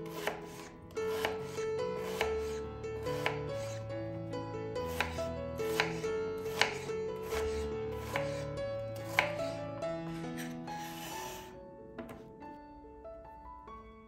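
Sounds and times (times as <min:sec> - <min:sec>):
knife cutting onion: 0:00.0 - 0:03.8, 0:04.8 - 0:12.2
background music with held notes: 0:00.0 - 0:14.0
knife tapping on wooden board: 0:12.0 - 0:12.3.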